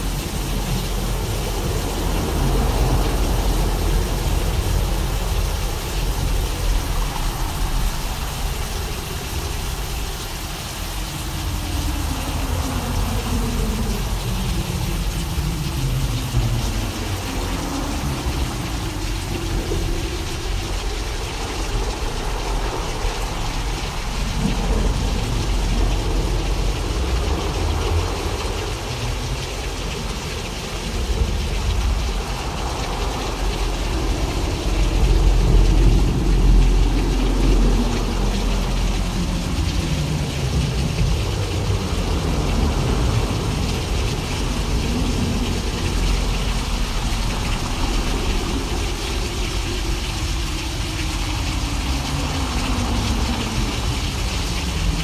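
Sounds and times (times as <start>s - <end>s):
deep continuous rumble: 0.0s - 55.0s
synthesized rain-like hiss: 0.0s - 55.0s.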